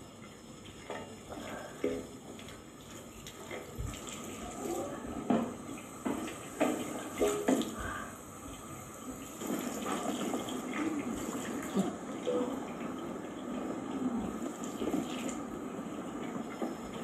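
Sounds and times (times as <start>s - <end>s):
tap water splashing into sink: 5.2s - 8.0s.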